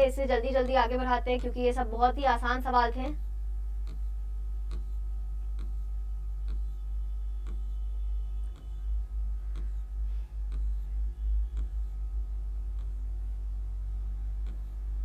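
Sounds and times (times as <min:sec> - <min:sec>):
low electrical hum: 0:00.0 - 0:15.0
light clicks: 0:11.5 - 0:12.0.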